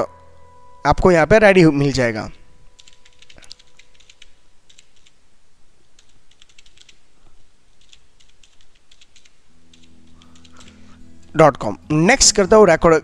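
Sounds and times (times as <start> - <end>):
computer keyboard typing: 2.8 - 5.2, 6.0 - 7.0, 7.7 - 11.0.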